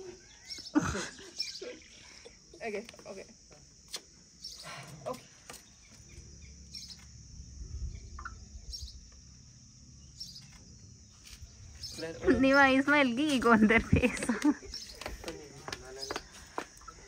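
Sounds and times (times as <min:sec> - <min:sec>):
bird chirps: 0:00.0 - 0:02.4, 0:03.9 - 0:09.2, 0:10.0 - 0:12.8, 0:14.6 - 0:15.2
high insect drone: 0:00.0 - 0:17.0.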